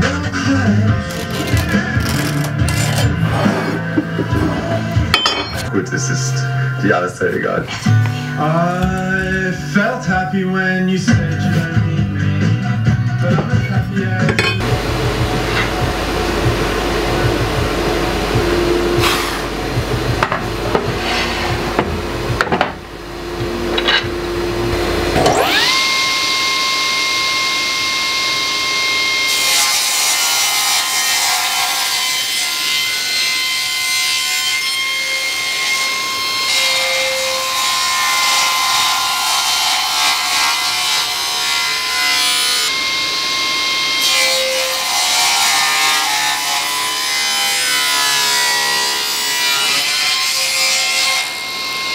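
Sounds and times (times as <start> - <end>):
table saw whine: 0.0 - 11.7, 13.4 - 51.9
saw cutting through wood: 0.8 - 6.4, 18.3 - 21.8, 24.8 - 51.9.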